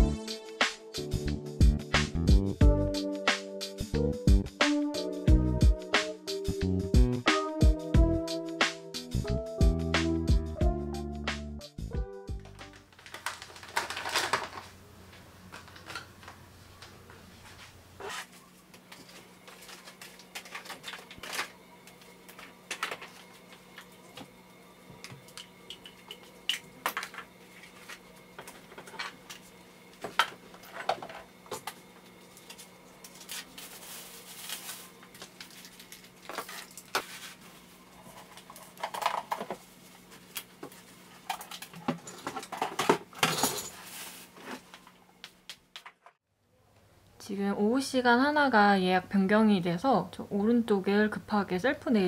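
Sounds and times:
small hard items clattering: 12.6 - 14.8, 19.0 - 21.6.

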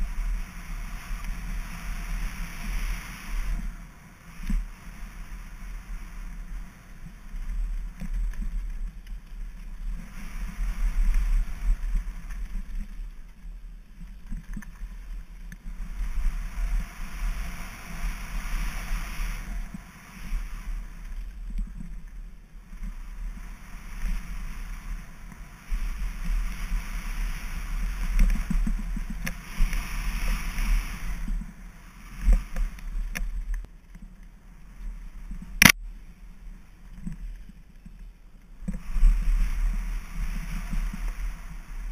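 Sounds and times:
wind on microphone: 0.0 - 13.3, 14.0 - 33.7, 38.6 - 41.9
bike tyres rolling on dirt: 0.0 - 41.9.

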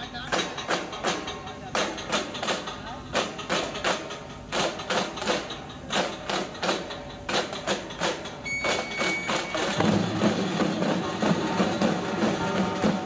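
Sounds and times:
frame drums beaten: 0.0 - 13.0
high steady tone: 8.4 - 13.0.

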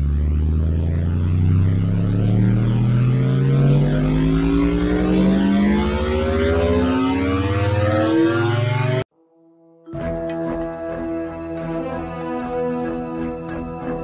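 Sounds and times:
engine running with rising pitch: 0.0 - 9.1.

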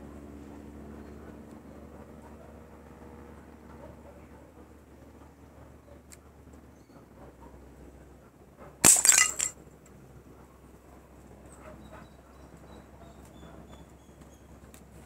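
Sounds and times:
glass bottle shattering: 8.8 - 9.5.

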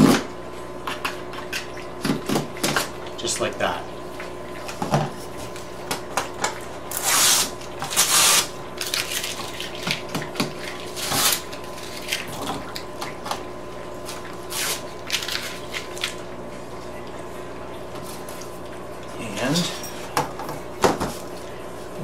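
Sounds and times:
knife scraping plastic sheet: 6.9 - 9.5, 10.9 - 12.5, 14.1 - 15.9.

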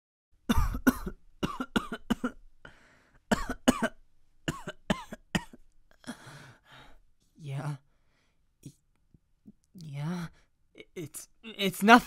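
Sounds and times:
person coughing: 0.5 - 2.4, 3.3 - 6.3.

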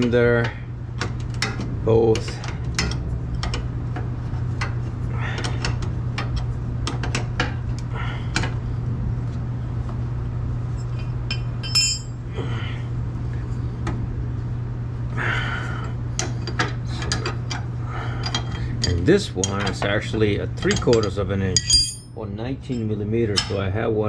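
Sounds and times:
wrenches clinking against metal: 11.3 - 12.2, 18.2 - 23.6.

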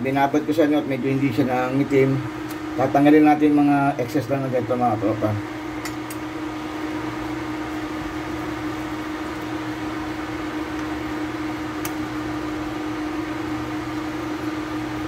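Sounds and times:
electric cooktop humming: 0.0 - 15.0
click: 11.8 - 12.0.

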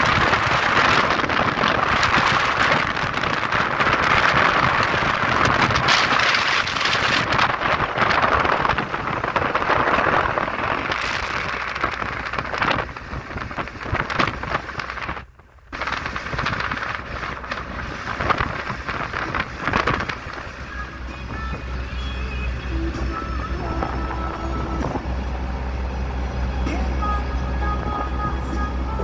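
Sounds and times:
wind buffeting microphone: 0.0 - 21.9
road noise: 0.0 - 29.0.

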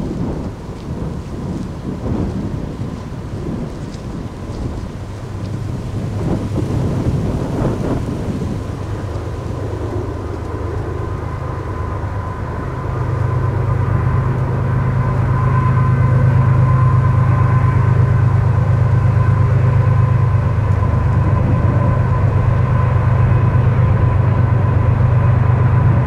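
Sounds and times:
diesel locomotive engine rumble: 0.0 - 26.0
steady higher tones: 10.9 - 26.0.

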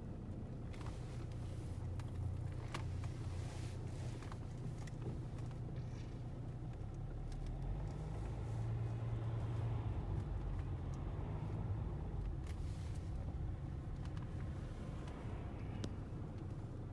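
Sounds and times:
car engine and tyres rumbling: 0.0 - 16.9.

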